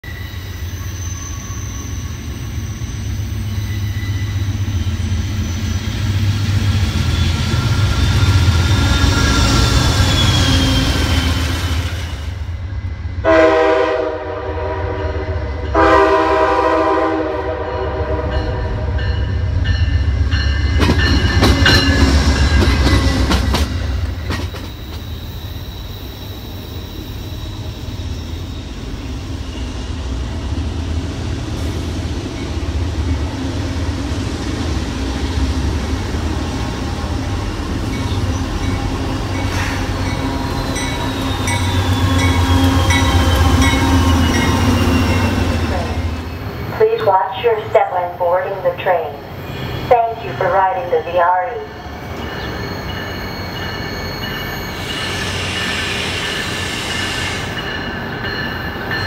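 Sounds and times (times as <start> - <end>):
wheel squeal: 0.1 - 6.2, 6.9 - 11.7, 24.3 - 28.8, 39.4 - 45.6, 52.2 - 57.8
train rumble: 2.1 - 59.0
locomotive horn blasts: 13.2 - 18.8.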